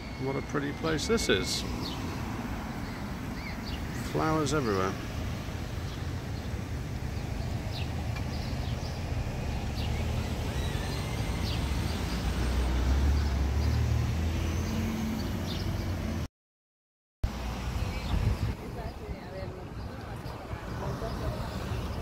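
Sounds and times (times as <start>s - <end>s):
car passing by: 8.9s - 16.3s.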